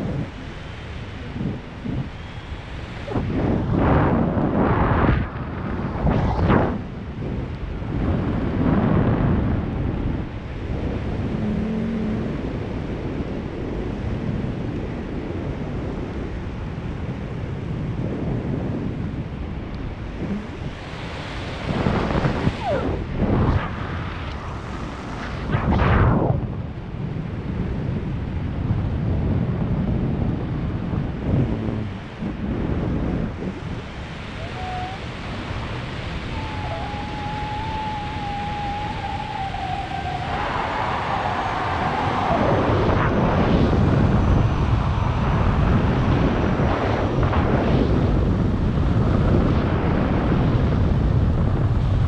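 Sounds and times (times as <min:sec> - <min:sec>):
wind rushing over microphone: 0:00.0 - 0:52.0
faint wavering tone: 0:11.2 - 0:12.5, 0:22.5 - 0:23.1, 0:34.3 - 0:40.4.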